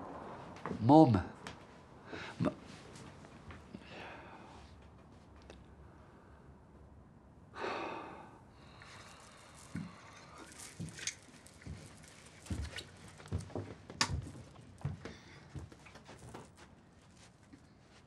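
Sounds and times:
heavy exhaled sigh: 7.6 - 10.0
soft knocks clicks and rustles: 9.8 - 16.8.

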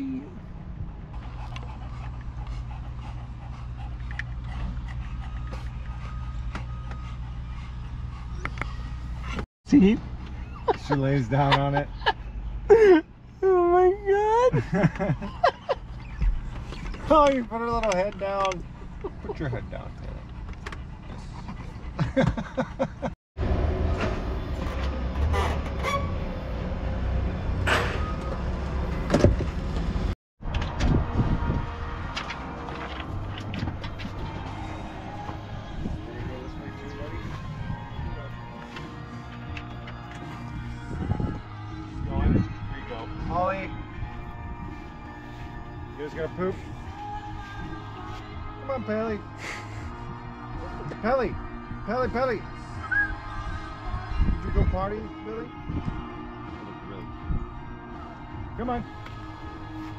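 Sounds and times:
low hum: 0.0 - 9.4
idling motor vehicle rumble: 0.2 - 13.4, 14.5 - 41.9
dogs panting: 0.7 - 13.2, 14.5 - 23.1, 32.5 - 41.5.

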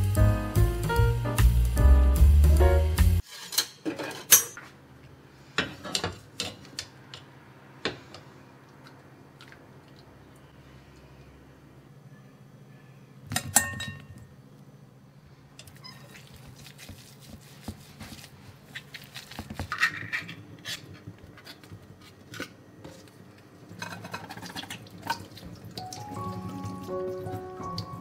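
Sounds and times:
potatoes mashed in glass bowl: 16.1 - 20.8.

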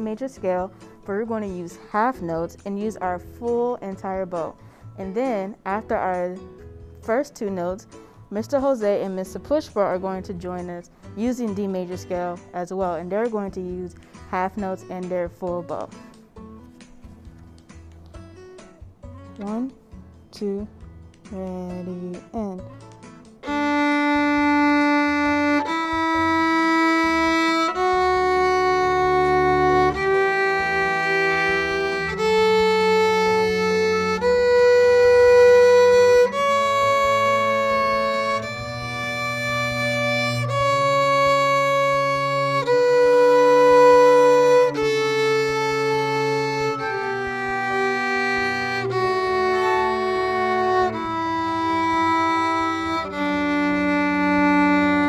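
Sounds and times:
cello and double bass: 23.3 - 55.0
violins bowing a scale: 27.6 - 41.2, 44.5 - 51.8.

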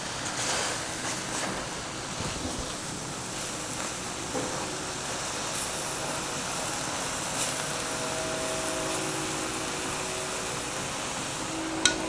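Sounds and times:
food sizzling in a skillet: 4.5 - 12.0.

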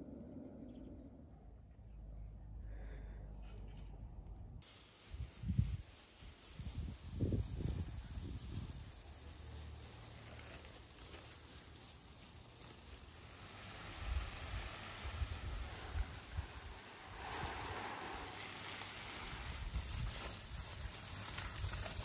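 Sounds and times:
hose spray pattering on leaves: 4.6 - 22.0.

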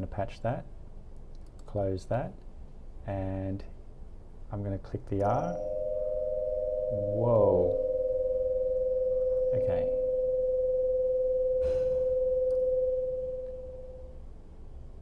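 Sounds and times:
acoustic feedback howl: 5.2 - 15.0.

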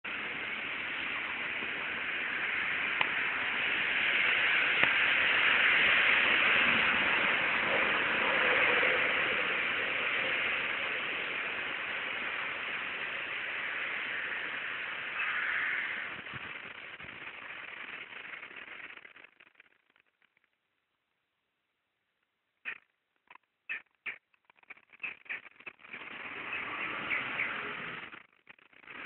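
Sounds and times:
sharp clicks: 22.6 - 26.1.

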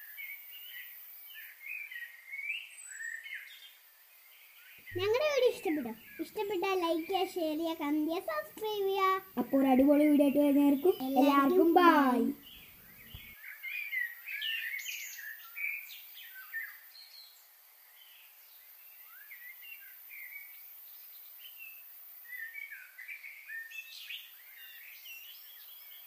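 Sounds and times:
birds chirping: 4.8 - 13.4.

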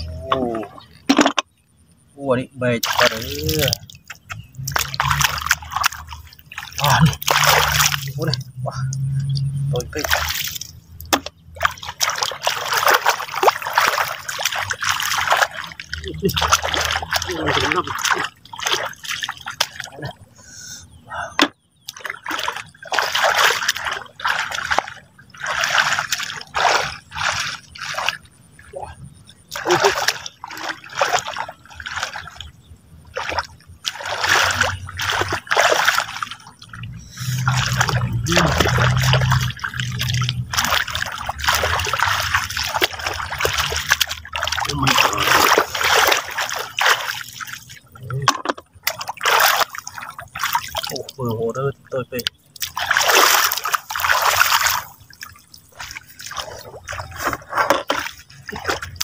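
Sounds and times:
water splashing and sloshing: 0.0 - 59.0
low steady hum: 22.3 - 59.0.

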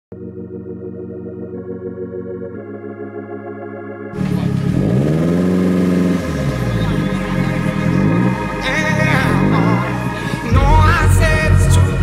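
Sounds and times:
synthesized organ-like chords: 0.1 - 12.0
car engine revving: 4.1 - 12.0.

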